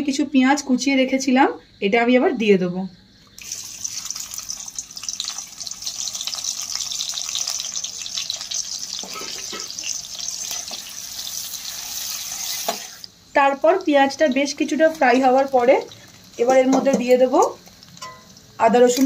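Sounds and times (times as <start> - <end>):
onions sizzling in oil: 3.3 - 19.0
spatula stirring: 9.0 - 13.0.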